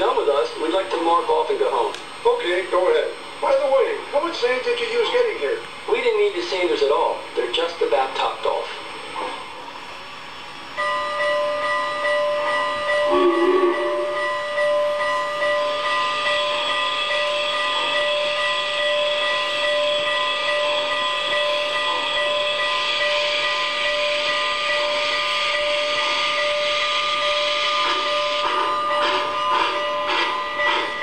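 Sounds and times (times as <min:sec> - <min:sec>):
steam locomotive chuffing: 0:00.0 - 0:31.0
model train steam hiss: 0:15.6 - 0:31.0.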